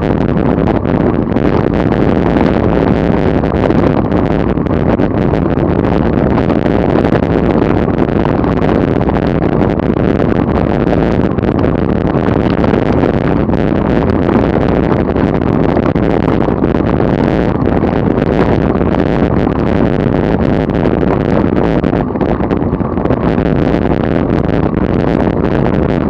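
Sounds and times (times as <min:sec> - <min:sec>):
wind rush on microphone: 0:00.0 - 0:26.0.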